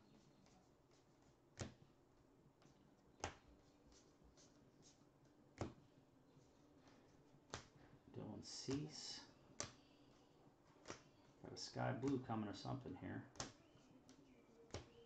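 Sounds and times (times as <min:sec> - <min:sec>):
card edges ticking: 0:08.4 - 0:15.0.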